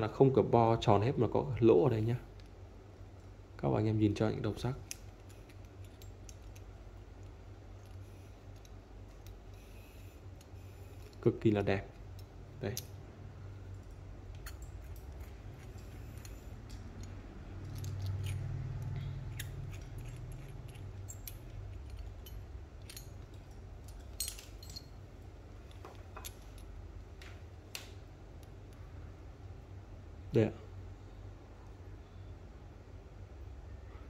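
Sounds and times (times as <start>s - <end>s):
steady low hum: 0.0s - 34.0s
metal plugs clicking and clinking: 4.6s - 13.0s, 13.7s - 25.0s.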